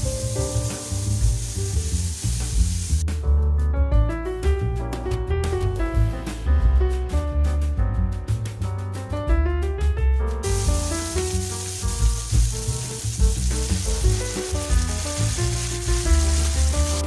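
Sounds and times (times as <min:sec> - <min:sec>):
sauce poured into pan: 0:00.0 - 0:03.0, 0:10.4 - 0:17.0
vegetables sizzling in a frying pan: 0:00.0 - 0:03.0, 0:10.4 - 0:17.0
background music with bass: 0:00.0 - 0:17.0.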